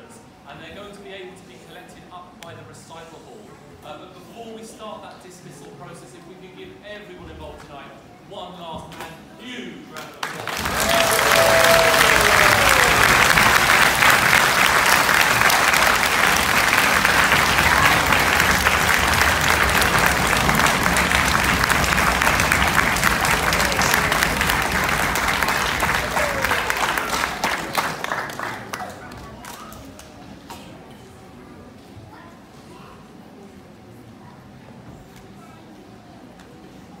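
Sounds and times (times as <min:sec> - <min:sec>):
audience applauding: 0:10.2 - 0:29.6.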